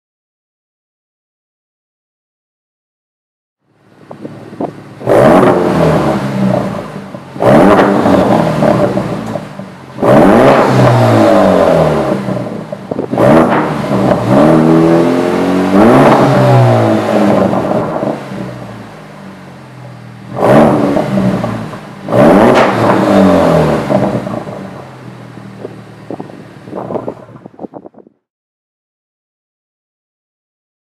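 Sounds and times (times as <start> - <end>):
car engine revving: 3.8 - 27.9.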